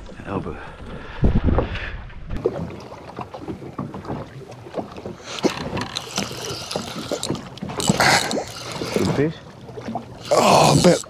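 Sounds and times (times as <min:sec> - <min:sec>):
water lapping against boat hull: 0:00.0 - 0:11.0.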